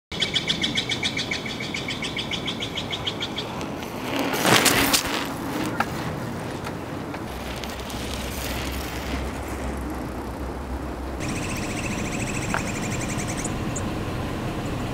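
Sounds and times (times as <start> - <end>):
rapid even chirping: 0.1 - 5.8, 7.3 - 13.8
vehicle passing: 2.0 - 14.9
low hum: 5.2 - 14.9.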